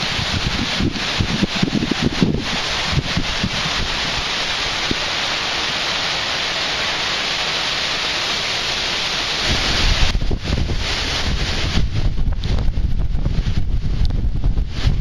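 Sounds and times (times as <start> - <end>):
microphone wind buffeting: 0.0 - 5.2, 9.4 - 15.0
rain and wind hissing: 0.0 - 15.0.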